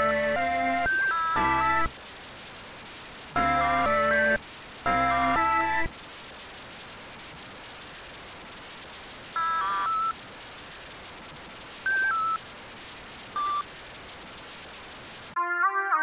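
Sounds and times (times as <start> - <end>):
static hiss: 0.0 - 15.4
electronic telephone beeps: 11.9 - 12.4, 13.4 - 13.6.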